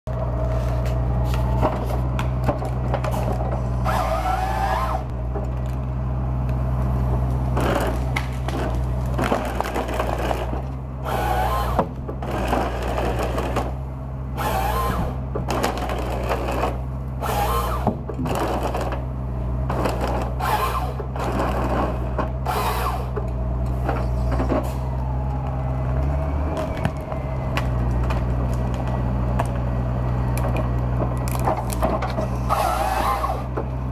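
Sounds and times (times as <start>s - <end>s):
tractor engine running: 0.0s - 33.9s
wood cracking and snapping: 7.2s - 10.8s, 25.2s - 32.3s.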